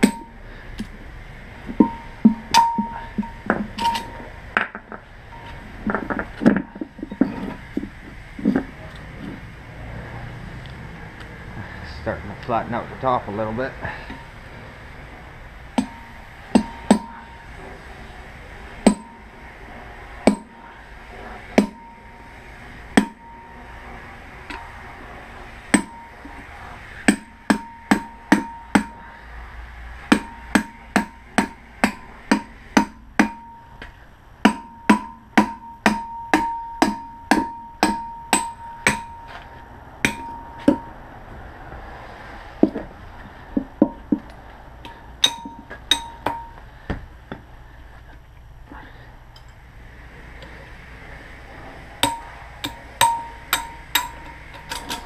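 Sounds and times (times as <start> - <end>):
hammer striking steel chisel: 0.0 - 0.4, 1.7 - 7.9, 15.8 - 17.4, 18.8 - 19.3, 20.2 - 20.6, 21.6 - 22.1, 23.0 - 23.6, 25.7 - 26.4, 27.1 - 29.0, 30.1 - 33.8, 34.4 - 41.0, 44.8 - 46.6, 52.0 - 55.0.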